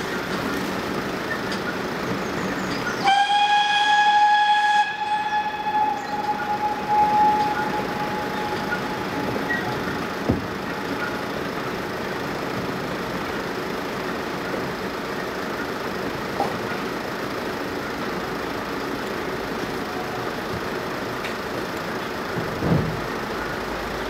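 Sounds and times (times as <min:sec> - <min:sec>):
distant steam train rumble: 0:00.0 - 0:24.0
steam whistle: 0:03.0 - 0:10.2.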